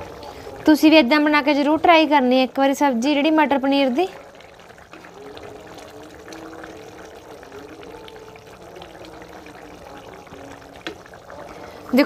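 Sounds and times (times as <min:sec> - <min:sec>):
curry bubbling: 0:00.0 - 0:12.0
ladle stirring thick curry: 0:03.8 - 0:12.0.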